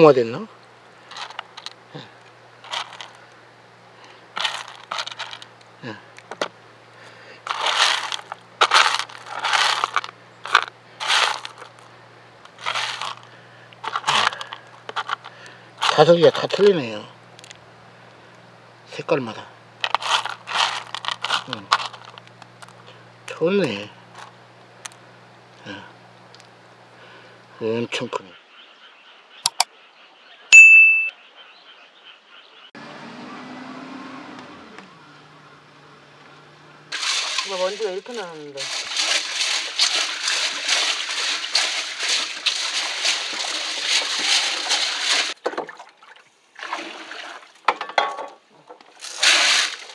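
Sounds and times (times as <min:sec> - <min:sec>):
steady hiss with low hum: 0:00.0 - 0:28.0
snail shells clattering in basket: 0:01.0 - 0:01.8, 0:02.6 - 0:03.2, 0:04.4 - 0:05.6, 0:07.4 - 0:16.6, 0:19.8 - 0:22.8, 0:36.9 - 0:45.4
bright bell ding: 0:30.6 - 0:31.1.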